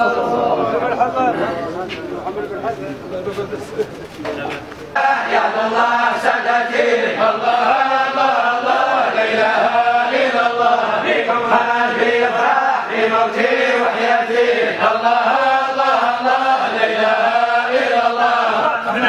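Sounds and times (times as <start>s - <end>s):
men chanting in unison: 4.9s - 19.0s.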